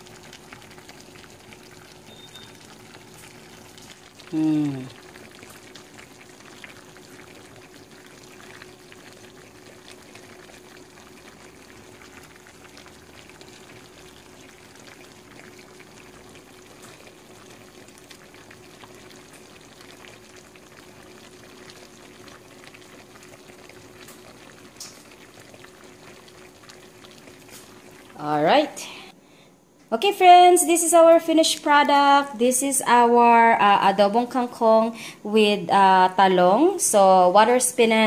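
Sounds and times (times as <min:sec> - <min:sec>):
stew bubbling in a pan: 0:00.0 - 0:29.1
faint steady hum: 0:00.0 - 0:38.0.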